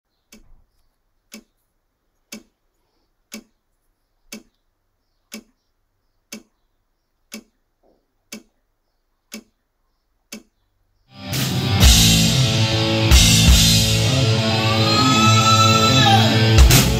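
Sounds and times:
clock ticking: 0:01.3 - 0:01.6, 0:02.2 - 0:02.6, 0:03.3 - 0:03.6, 0:04.2 - 0:04.6, 0:05.3 - 0:05.6, 0:06.3 - 0:06.5, 0:07.3 - 0:07.6, 0:08.2 - 0:08.6, 0:09.3 - 0:09.6, 0:10.2 - 0:10.6.

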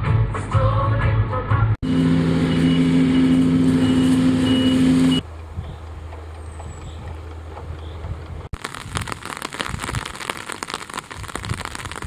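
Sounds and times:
utility vehicle droning: 0:01.8 - 0:08.5
tractor engine hum: 0:01.8 - 0:09.6
short high beeps: 0:02.5 - 0:05.2.

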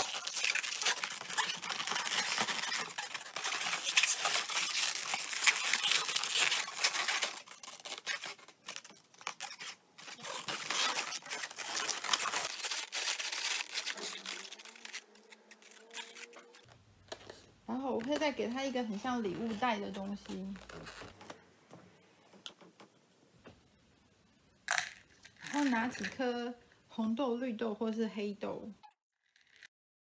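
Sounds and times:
balloons rubbing and squeaking: 0:00.0 - 0:21.4, 0:25.2 - 0:26.2, 0:29.2 - 0:29.7.

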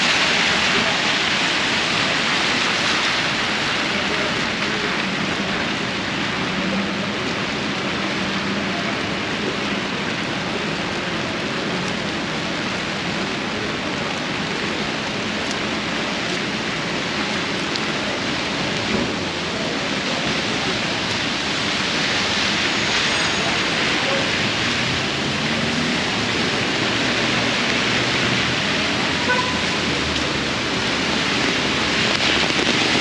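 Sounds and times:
heavy rain hissing: 0:00.0 - 0:33.0.

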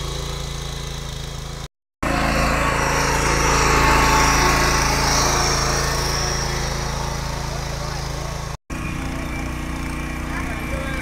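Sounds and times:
small petrol engine running: 0:00.0 - 0:11.0.

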